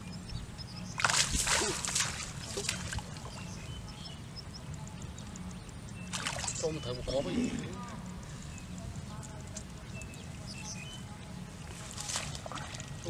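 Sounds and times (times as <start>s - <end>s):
muddy water sloshing and splashing: 1.0s - 3.5s, 6.0s - 7.9s, 9.4s - 13.0s.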